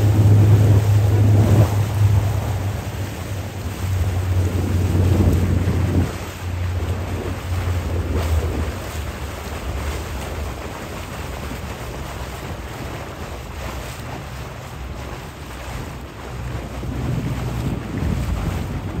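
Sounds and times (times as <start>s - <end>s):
water rushing past boat: 0.0s - 19.0s
wind buffeting microphone: 0.0s - 19.0s.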